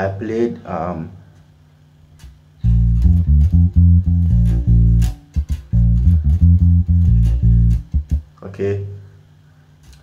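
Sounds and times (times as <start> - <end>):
electric bass guitar groove: 2.2 - 8.4.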